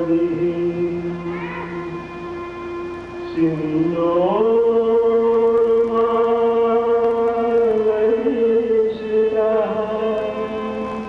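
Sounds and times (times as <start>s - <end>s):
person singing: 0.0s - 11.0s.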